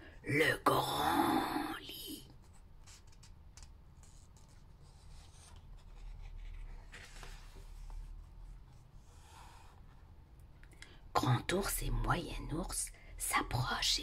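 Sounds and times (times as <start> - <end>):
book pages turning: 2.3 - 8.9.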